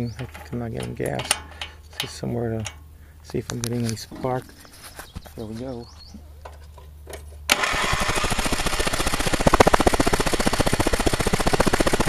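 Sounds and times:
engine cranking: 0:07.5 - 0:12.0.

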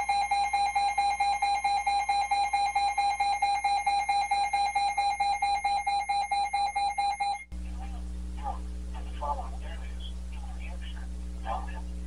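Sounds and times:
rapidly pulsing electronic beep: 0:00.0 - 0:07.5.

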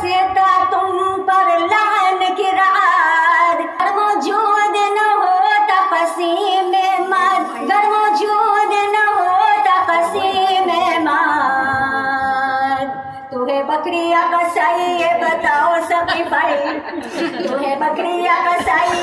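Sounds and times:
woman singing unaccompanied: 0:00.0 - 0:19.0.

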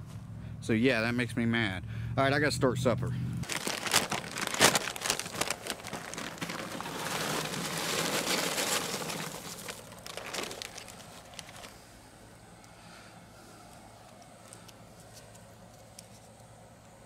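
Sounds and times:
charcoal briquettes clattering: 0:03.4 - 0:11.8
paper bag crinkling: 0:03.4 - 0:11.8.

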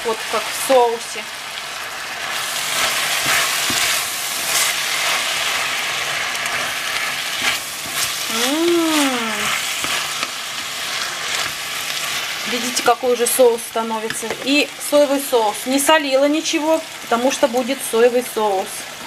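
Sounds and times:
stir-fry sizzling in a pan: 0:00.0 - 0:19.0
wooden spatula scraping: 0:02.2 - 0:08.3, 0:09.0 - 0:12.9.

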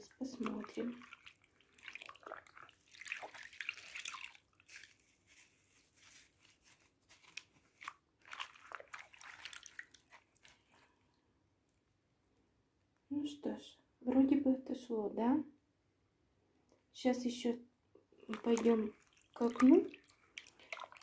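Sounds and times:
soapy water sloshing and dripping: 0:00.0 - 0:11.2, 0:18.2 - 0:21.0.

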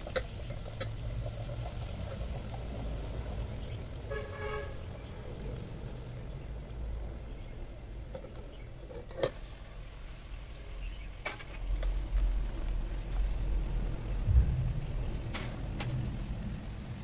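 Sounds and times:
low rumble: 0:12.0 - 0:17.0.

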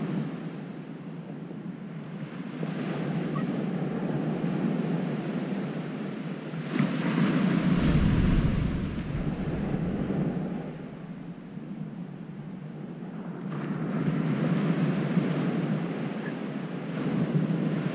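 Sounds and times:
ocean surf on sandy beach: 0:00.0 - 0:17.9
wind rumbling on microphone: 0:02.1 - 0:17.9.

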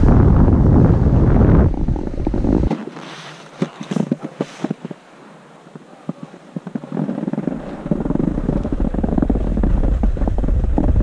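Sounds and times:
wind buffeting microphone: 0:00.0 - 0:11.0
rough scraping over snow: 0:02.2 - 0:05.0, 0:06.2 - 0:11.0.

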